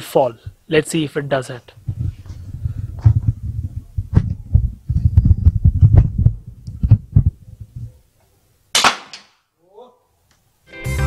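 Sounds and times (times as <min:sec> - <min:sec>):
wind buffeting microphone: 0:01.7 - 0:08.0
sharp crack: 0:08.7 - 0:09.5.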